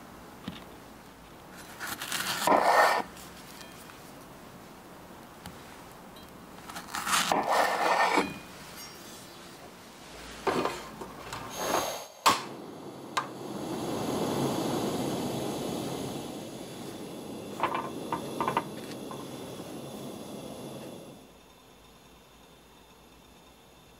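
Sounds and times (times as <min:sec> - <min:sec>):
gas burner hissing: 0:00.0 - 0:23.9
knife slicing on wooden board: 0:01.8 - 0:03.1.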